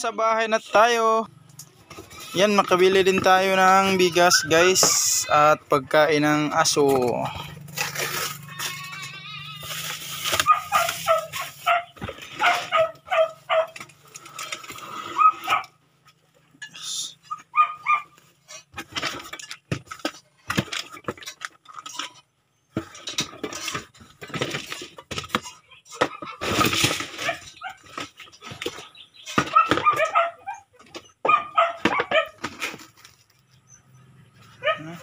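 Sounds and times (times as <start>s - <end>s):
plastic bags and cardboard rustling: 1.8s - 5.3s, 6.6s - 14.8s, 22.8s - 30.0s, 30.8s - 33.5s
dog barking: 10.4s - 13.8s, 15.2s - 15.8s, 17.5s - 18.2s, 27.2s - 27.8s, 29.5s - 32.4s, 34.6s - 35.0s.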